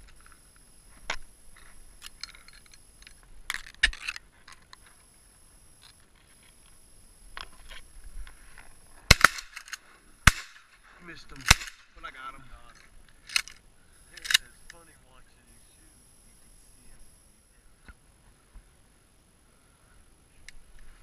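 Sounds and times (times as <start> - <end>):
shotgun blasts: 9.1 - 9.6, 10.2 - 10.7, 11.4 - 12.0.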